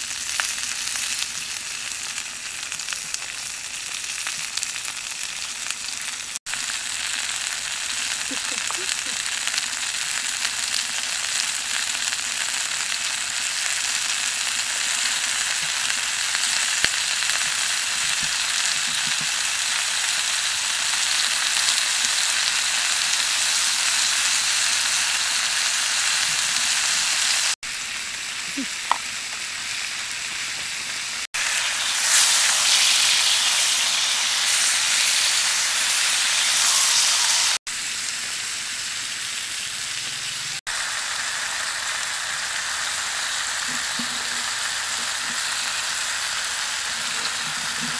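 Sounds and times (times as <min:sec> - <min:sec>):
ribs sizzling on hot stone: 0:00.0 - 0:47.9.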